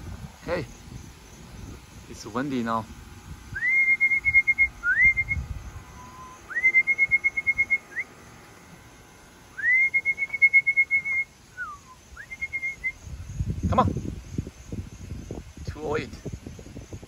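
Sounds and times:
person whistling trills: 0:03.6 - 0:08.1, 0:09.6 - 0:13.0.

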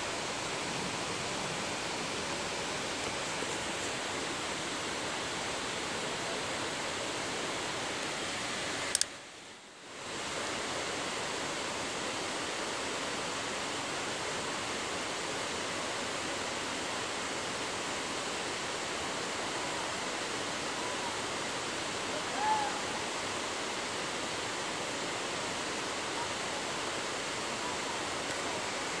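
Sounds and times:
waterfall rushing: 0:00.0 - 0:29.0
faint whistle-like call: 0:22.2 - 0:23.1.

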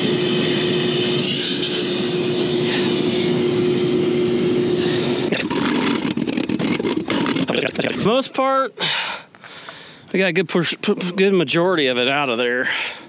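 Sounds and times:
compressed air hissing through tube: 0:00.3 - 0:07.8.

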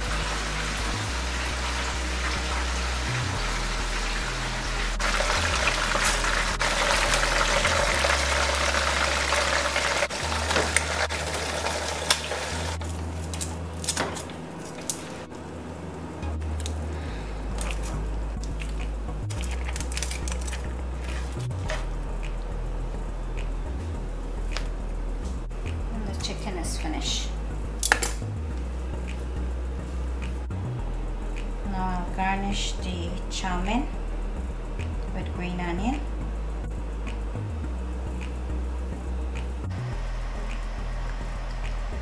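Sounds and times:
chicken sizzling in a frying pan: 0:00.0 - 0:12.8.

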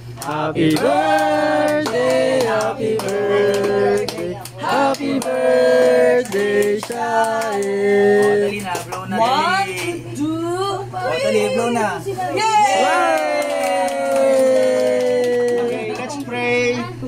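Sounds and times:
people singing a birthday tune: 0:00.0 - 0:09.2
hand claps: 0:00.2 - 0:05.4, 0:06.2 - 0:09.1, 0:13.0 - 0:16.4.

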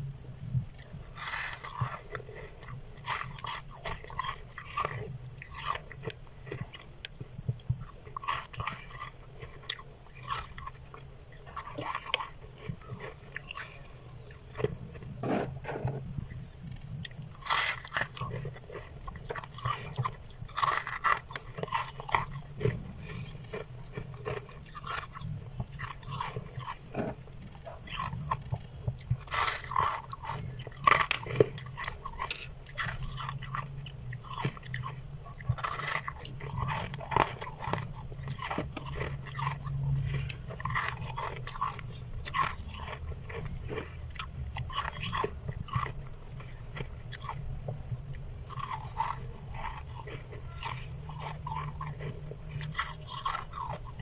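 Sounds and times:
steady low hum: 0:00.0 - 0:54.0
frost being bitten and chewed: 0:00.6 - 0:54.0.

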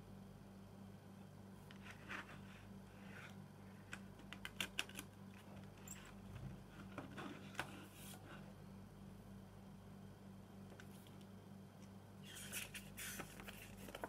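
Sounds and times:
faint steady hum: 0:00.0 - 0:14.0
paper rustle: 0:12.2 - 0:14.0.

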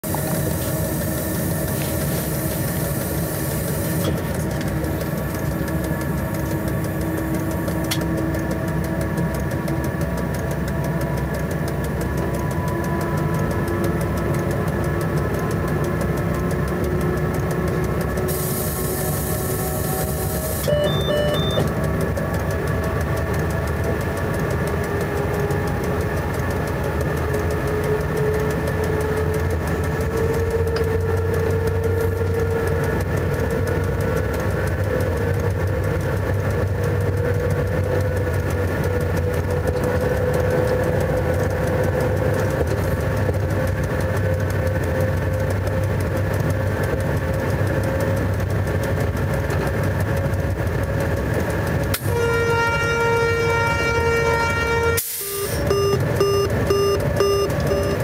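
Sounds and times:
traction motor whine: 0:00.0 - 0:58.0
wheels rumbling on rails: 0:00.0 - 0:58.0
short electronic beeps: 0:20.4 - 0:21.8, 0:55.2 - 0:58.0.

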